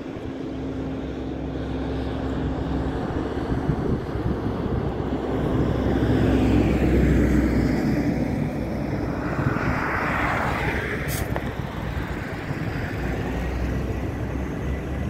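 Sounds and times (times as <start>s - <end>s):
jet engines running: 0.0s - 15.0s
car passing close by: 4.6s - 14.0s.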